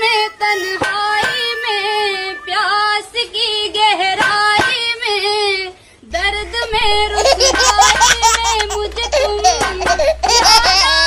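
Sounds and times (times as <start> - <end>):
woman singing high held notes: 0.0 - 3.0.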